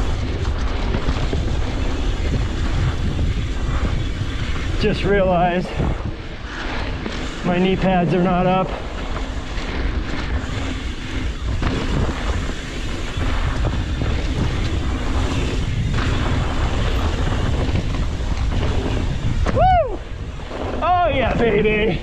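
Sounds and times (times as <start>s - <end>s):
tyres rolling over dirt: 0.0s - 22.0s
wind buffeting microphone: 0.0s - 22.0s.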